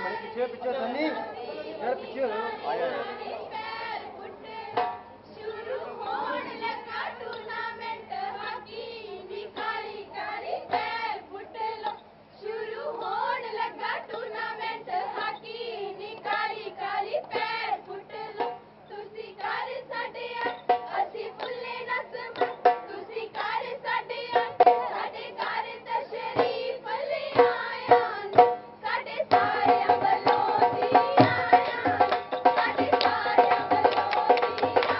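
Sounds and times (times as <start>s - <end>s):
women singing folk couplets: 1.1s - 34.9s
drum beats: 4.7s - 5.3s, 10.7s - 11.1s, 18.3s - 18.7s, 20.4s - 23.6s, 24.2s - 34.9s.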